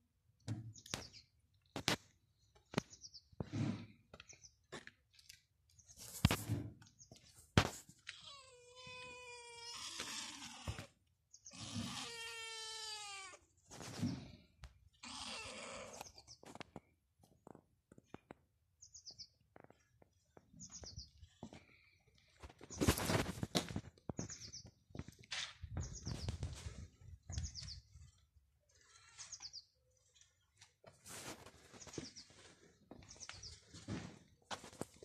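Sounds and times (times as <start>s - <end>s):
cat meowing: 8.1s - 10.9s, 11.6s - 13.4s.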